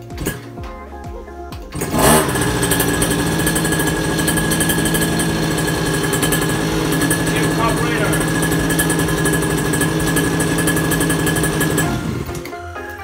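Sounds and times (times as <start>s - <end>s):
music with a beat: 0.0s - 3.0s, 11.8s - 13.0s
small engine starting and running: 0.1s - 0.5s, 1.7s - 13.0s.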